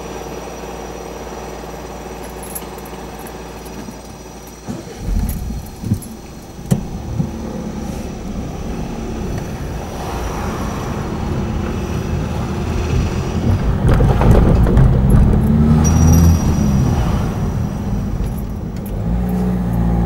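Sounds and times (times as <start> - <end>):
car engine and road rumble: 0.0 - 20.0
tyres thumping over rails: 4.6 - 18.9.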